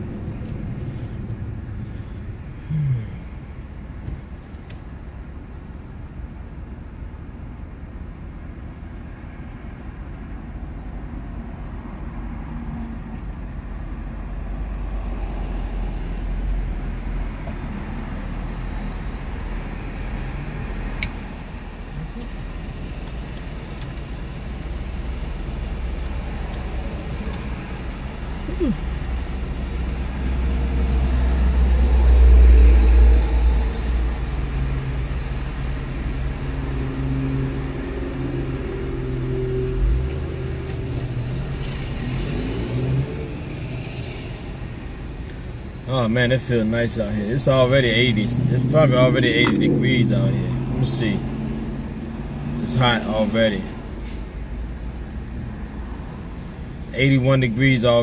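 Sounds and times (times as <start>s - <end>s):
low rumble of road traffic: 0.0s - 58.0s
vehicle passing: 14.5s - 45.2s, 46.9s - 56.7s.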